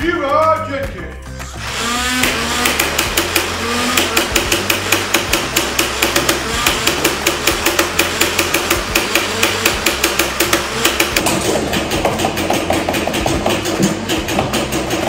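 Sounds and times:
flywheel motors humming: 1.5 - 15.0
toy blaster firing rapidly: 1.6 - 11.3.

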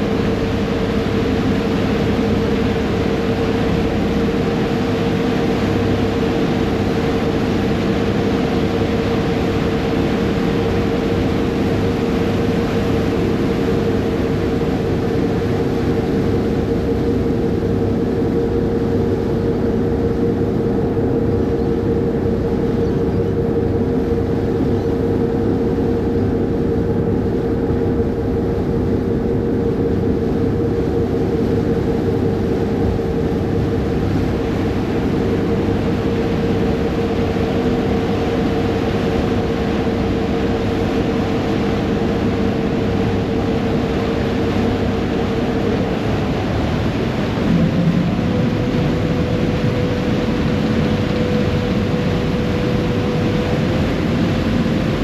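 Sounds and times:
ferry engines droning: 0.0 - 55.0
rushing wake water: 0.0 - 55.0.

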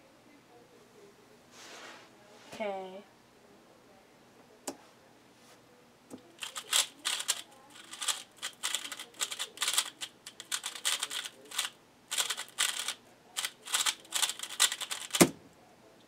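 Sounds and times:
puzzle cube clicking rapidly: 6.4 - 15.3.

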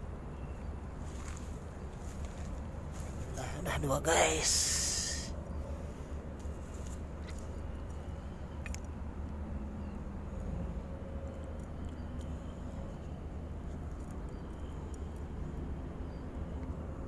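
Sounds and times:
low outdoor rumble: 0.0 - 17.0.

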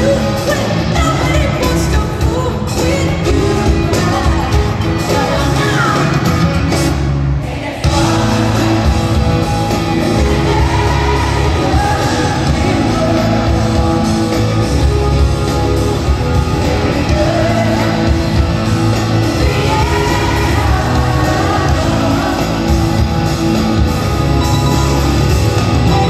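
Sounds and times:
woman singing: 0.0 - 6.3
live rock band: 0.0 - 26.0.

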